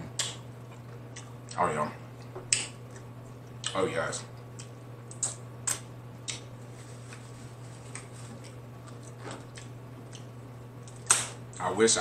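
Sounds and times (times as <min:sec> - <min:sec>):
steady low hum: 0:00.0 - 0:12.0
soft eating smacks and clicks: 0:00.2 - 0:01.6, 0:02.2 - 0:11.7.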